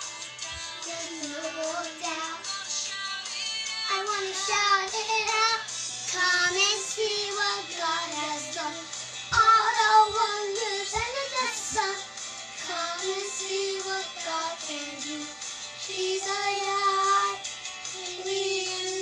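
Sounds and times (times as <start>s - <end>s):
pop backing music: 0.0s - 19.0s
girls singing: 0.4s - 19.0s.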